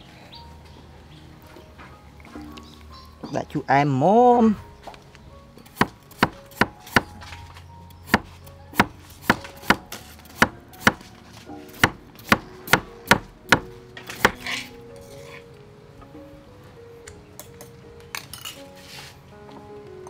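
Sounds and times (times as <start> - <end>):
cleaver knocking on wooden board: 8.1 - 9.8, 11.8 - 14.4.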